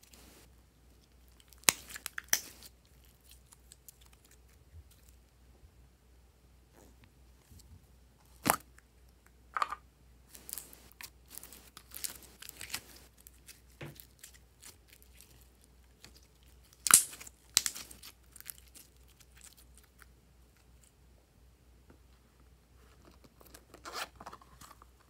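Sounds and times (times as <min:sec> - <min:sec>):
sticky slime crackling: 0:10.3 - 0:20.0.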